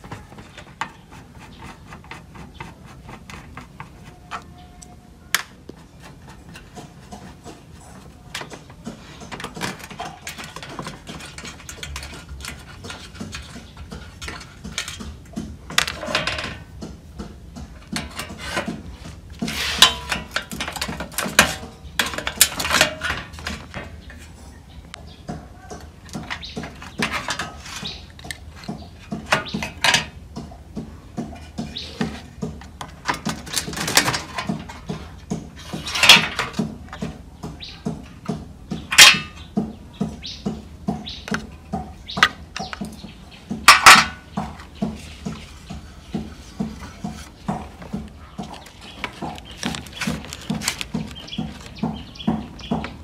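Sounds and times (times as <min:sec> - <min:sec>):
metal parts clinking and scraping: 0:09.3 - 0:15.0, 0:19.5 - 0:24.4, 0:35.7 - 0:36.6, 0:38.9 - 0:39.4, 0:43.7 - 0:44.2.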